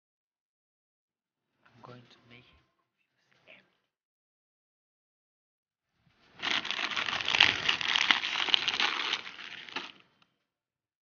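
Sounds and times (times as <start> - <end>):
plastic packaging crinkling: 6.3 - 10.2.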